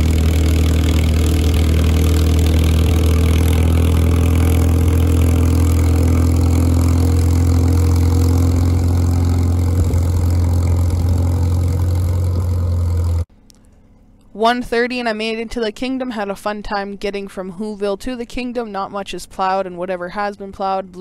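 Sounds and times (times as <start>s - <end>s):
crawler tractor diesel engine: 0.0s - 13.3s.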